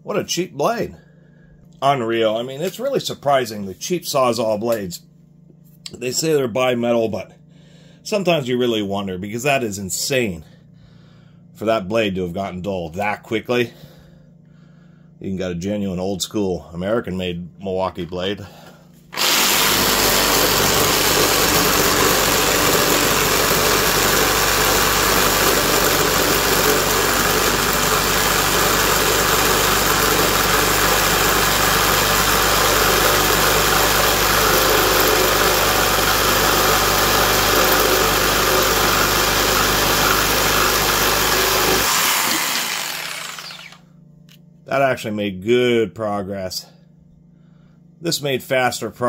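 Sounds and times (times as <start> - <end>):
reciprocating saw cutting wood: 19.1 - 43.8.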